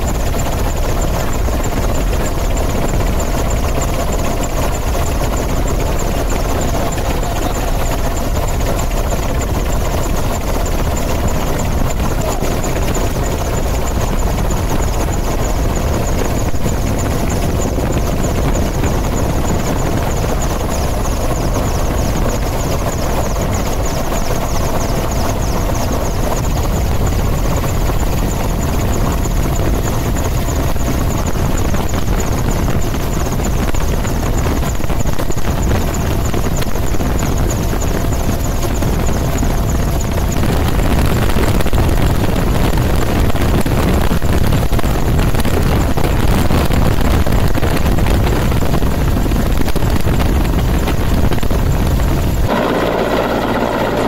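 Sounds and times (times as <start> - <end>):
helicopter rotor and engine: 0.0 - 54.0.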